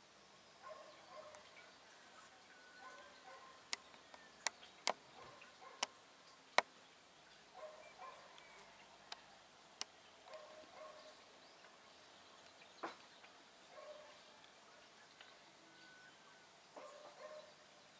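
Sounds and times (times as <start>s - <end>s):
bird calls: 0.6s - 6.0s, 7.3s - 17.9s
sharp clicks: 3.7s - 5.0s.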